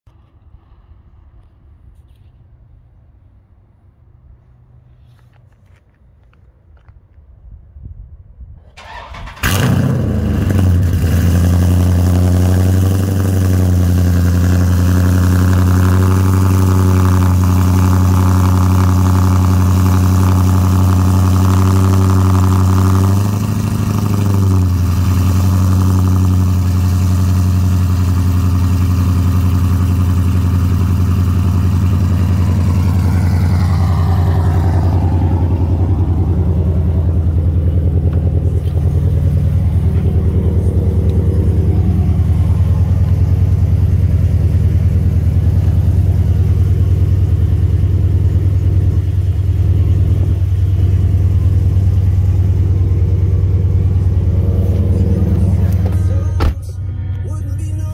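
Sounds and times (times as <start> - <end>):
car engine cranking: 8.7 - 57.9
loud engine fast idle: 8.8 - 56.5.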